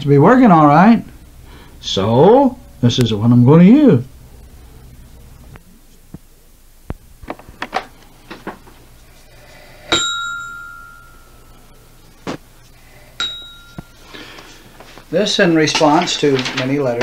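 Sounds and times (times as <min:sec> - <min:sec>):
small bell ringing: 0:09.9 - 0:11.6, 0:13.2 - 0:14.1.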